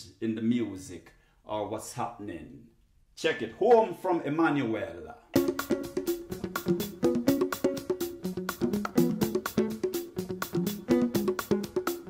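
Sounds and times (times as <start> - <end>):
electronic dance music: 5.4 - 12.0.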